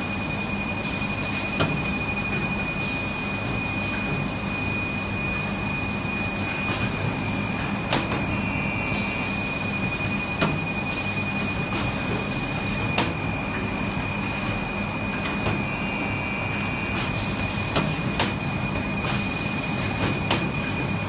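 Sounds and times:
brief electronic tone: 0:08.2 - 0:11.6.

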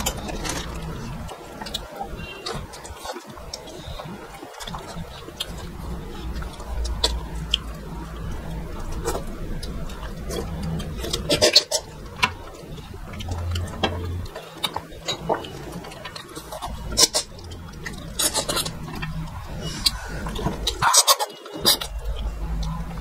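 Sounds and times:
people chewing and lip smacking: 0:00.0 - 0:23.0.

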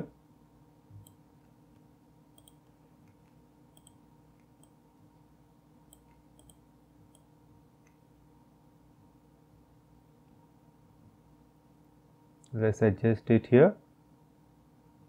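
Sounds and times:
faint computer mouse clicks: 0:01.8 - 0:04.8, 0:05.9 - 0:08.0.

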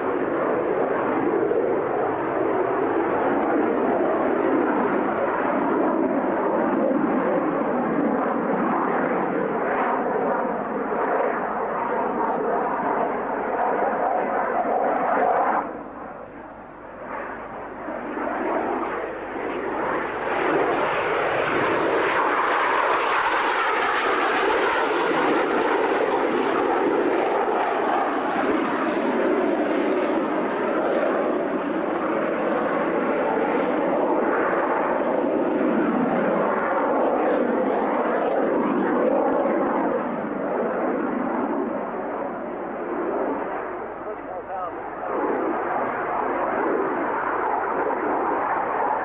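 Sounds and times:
jet engines flying past: 0:00.0 - 0:49.0
rising jet whine: 0:07.2 - 0:28.6, 0:39.9 - 0:49.0.

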